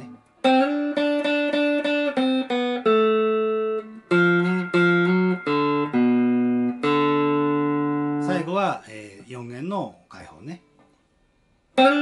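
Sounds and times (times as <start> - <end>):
electric guitar blues riff: 0.0 - 8.7, 11.8 - 12.0.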